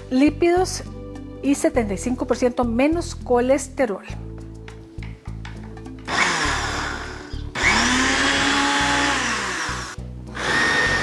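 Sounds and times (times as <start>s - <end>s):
blender motor running: 6.1s - 11.0s.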